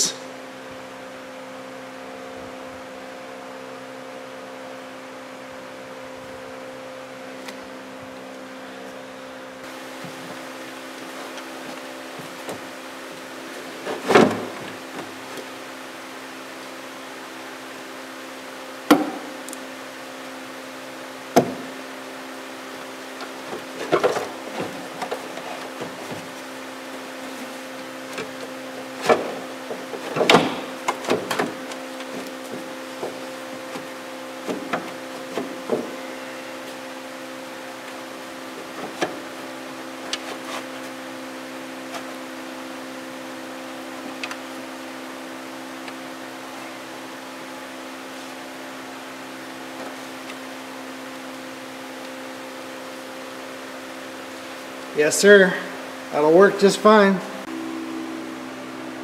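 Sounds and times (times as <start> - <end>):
steady hum: 0.0 - 59.0
parts being handled: 22.8 - 36.8.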